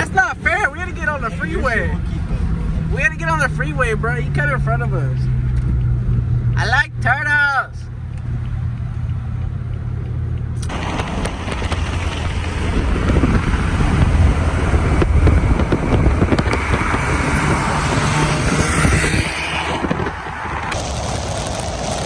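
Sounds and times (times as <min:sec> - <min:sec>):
wind and road noise: 0:00.0 - 0:22.0
car passing at speed: 0:10.7 - 0:22.0.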